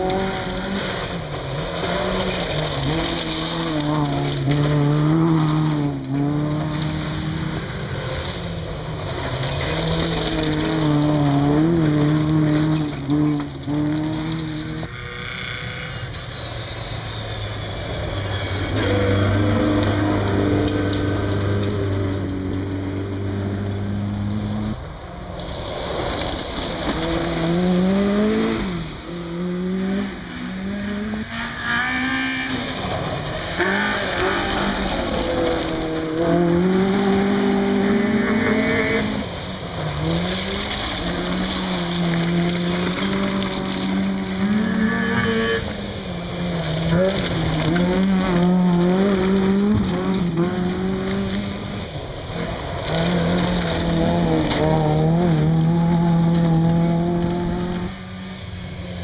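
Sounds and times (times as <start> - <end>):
rally car engines revving: 0.0 - 59.0
tyres scrabbling on gravel: 0.6 - 7.0, 8.0 - 14.9, 24.6 - 29.2, 32.8 - 45.0, 46.1 - 57.9.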